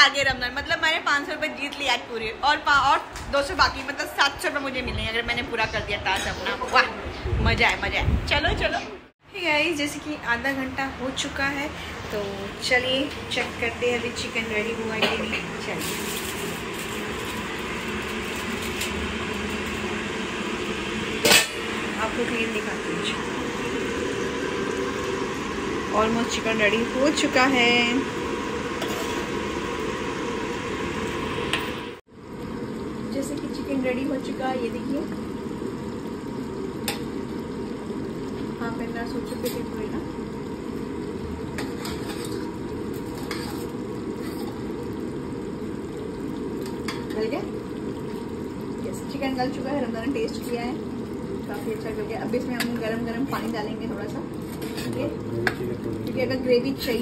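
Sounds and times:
steady mechanical hum: 0:00.0 - 0:57.0
curry bubbling in a pot: 0:12.6 - 0:57.0.

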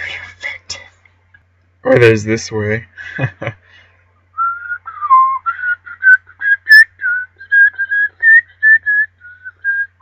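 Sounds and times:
person whistling: 0:04.4 - 0:10.0.

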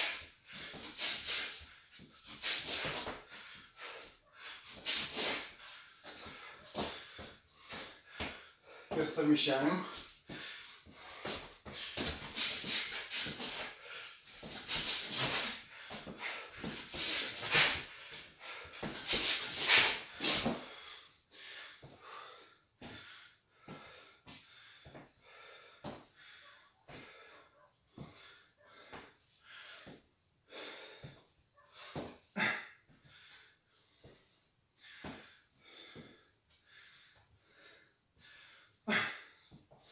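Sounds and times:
sharp forceful exhalations: 0:00.0 - 0:08.4, 0:10.3 - 0:22.3
heavy breathing: 0:00.0 - 0:39.9.

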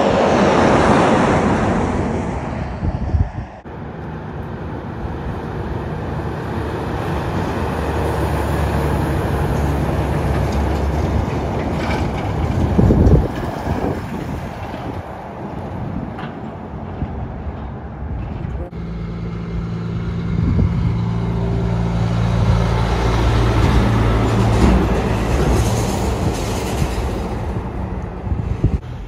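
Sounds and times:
truck passing at speed: 0:00.0 - 0:29.0
diesel truck engine droning: 0:17.9 - 0:29.0.

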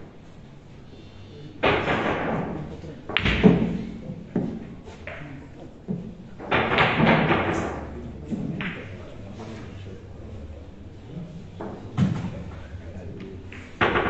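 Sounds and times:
billiard balls knocking: 0:01.6 - 0:09.6, 0:11.4 - 0:14.0.

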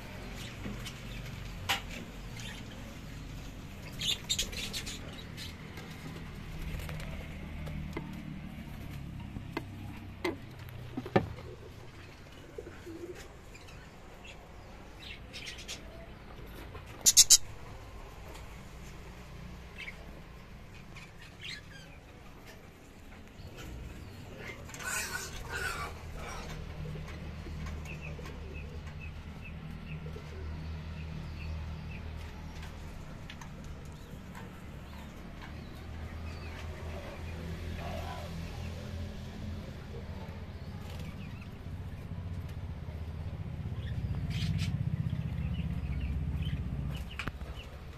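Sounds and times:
budgerigars chirping: 0:17.0 - 0:17.5.

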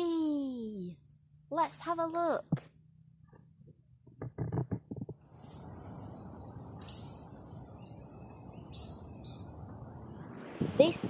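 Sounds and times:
short high chirping calls: 0:05.3 - 0:09.7.

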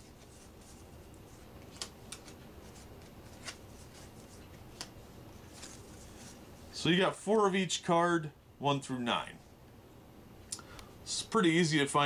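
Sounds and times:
light clicks of cards: 0:04.7 - 0:05.0.

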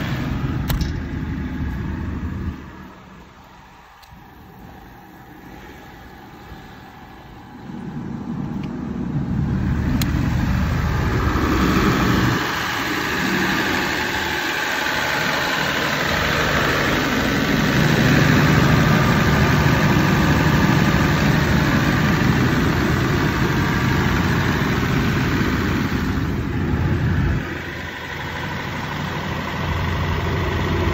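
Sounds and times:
diesel generator engine droning: 0:00.0 - 0:30.9.

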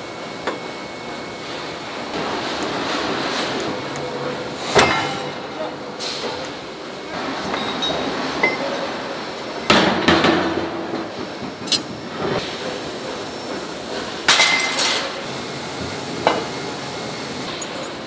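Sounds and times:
workshop noise: 0:00.0 - 0:18.0
metal clanking on steel dies: 0:04.6 - 0:06.6.

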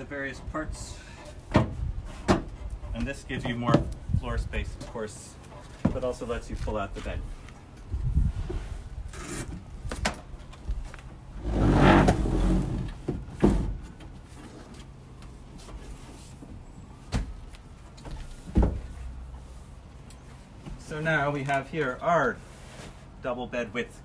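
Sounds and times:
bed platform scraping slide: 0:11.4 - 0:12.9.

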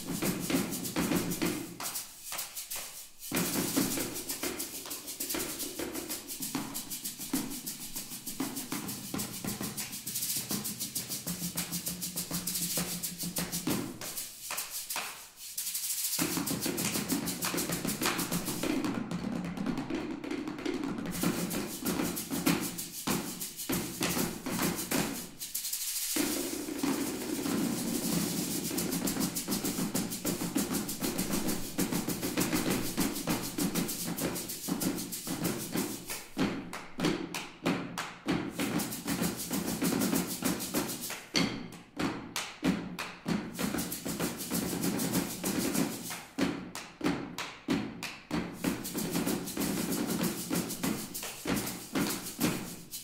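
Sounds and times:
sticks drumming on hollow pumpkins: 0:16.2 - 0:25.4, 0:26.2 - 0:53.0.

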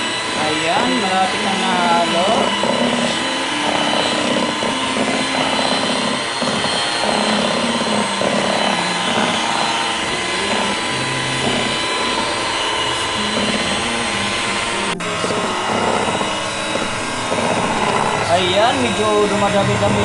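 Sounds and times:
electric hand mixer whipping cream: 0:00.0 - 0:20.0.

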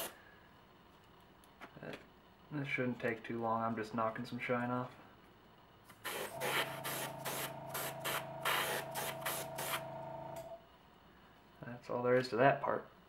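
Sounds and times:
compressor humming: 0:05.9 - 0:10.6
airbrush hissing bursts: 0:06.0 - 0:10.0.

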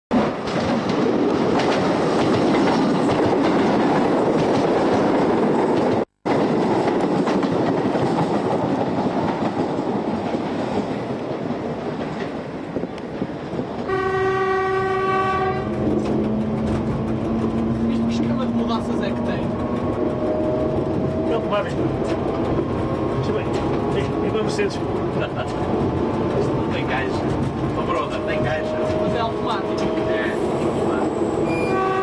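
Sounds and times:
train wheels clattering on rail: 0:00.1 - 0:32.0
train horn: 0:13.9 - 0:16.2, 0:28.1 - 0:30.4, 0:31.4 - 0:32.0.

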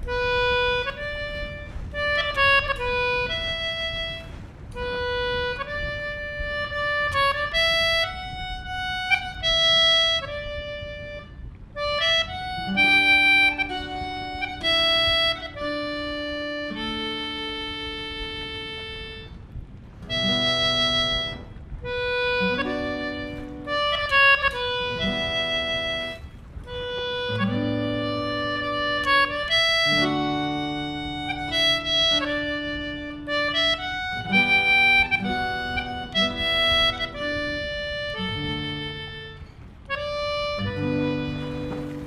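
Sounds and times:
concertina playing a tune: 0:00.0 - 0:42.0
strummed acoustic guitar: 0:40.2 - 0:42.0.

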